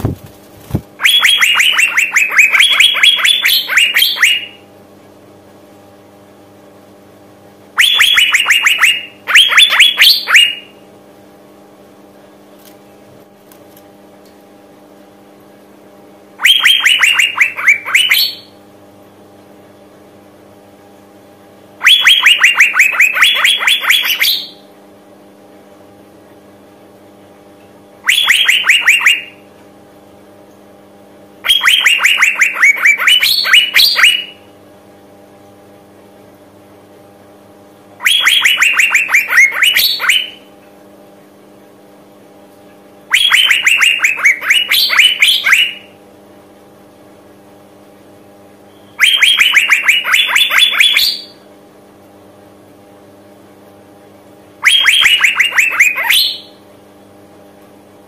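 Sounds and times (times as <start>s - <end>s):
bird calling rapid repeated notes: 0.0s - 4.6s, 7.8s - 10.7s, 16.4s - 18.5s, 21.8s - 24.6s, 28.0s - 29.4s, 31.4s - 34.4s, 38.0s - 40.4s, 43.1s - 45.9s, 49.0s - 51.4s, 54.6s - 56.6s.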